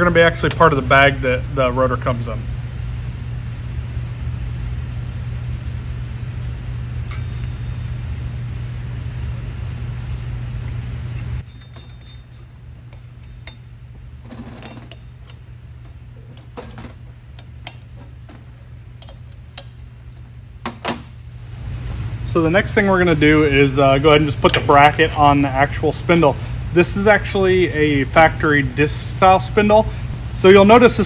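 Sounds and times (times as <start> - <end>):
low hum: 0.0 - 28.8
metal tools clinking: 7.1 - 7.7, 11.4 - 20.3.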